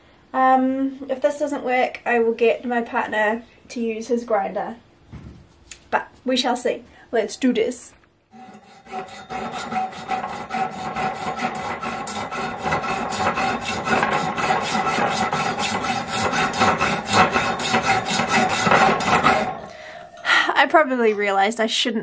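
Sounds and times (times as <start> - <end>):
hand saw rasping through wire: 8.3 - 19.7.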